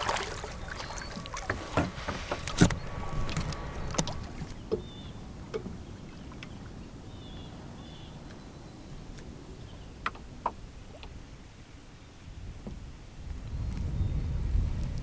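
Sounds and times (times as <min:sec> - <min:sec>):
light taps and splashes: 0:00.0 - 0:04.9
water washing against kayak hull: 0:00.0 - 0:08.3.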